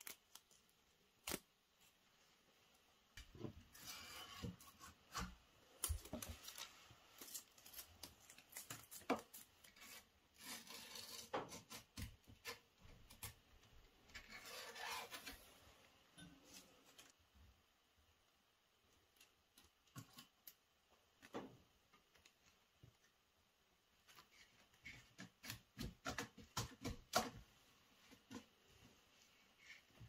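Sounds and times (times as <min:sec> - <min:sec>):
rasping scrapes: 0:09.8 - 0:11.8, 0:14.2 - 0:15.6.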